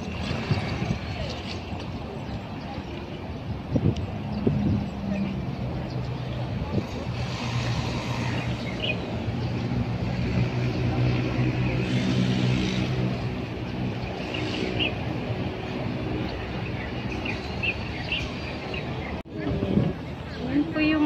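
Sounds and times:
outdoor noise: 0.0 - 21.0.

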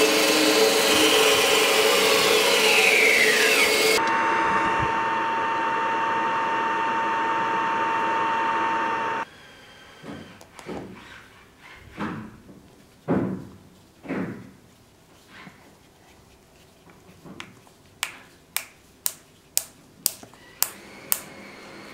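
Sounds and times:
bandsaw cutting metal with whine: 0.0 - 9.9.

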